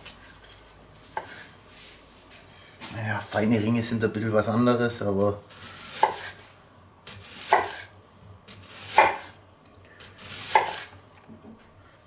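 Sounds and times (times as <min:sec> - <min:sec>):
knife slicing onion on board: 0:01.1 - 0:01.4, 0:05.4 - 0:09.4, 0:10.0 - 0:11.0.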